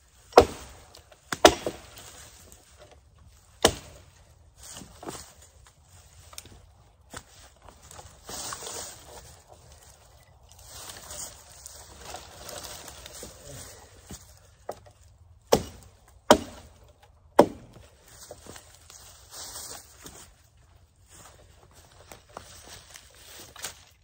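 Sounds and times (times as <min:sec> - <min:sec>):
wood cracking: 0:00.2 - 0:18.7
footsteps in dry leaves: 0:01.8 - 0:14.6, 0:17.8 - 0:24.0.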